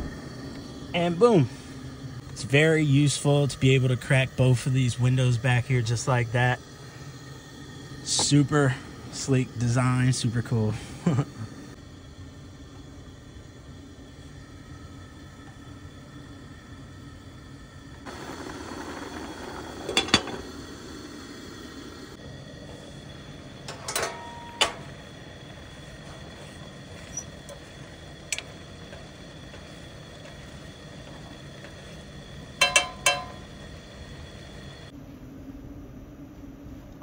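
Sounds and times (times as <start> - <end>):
steady background hum: 0.0 - 37.0
utensil clinking on metal saucepan: 32.6 - 33.5.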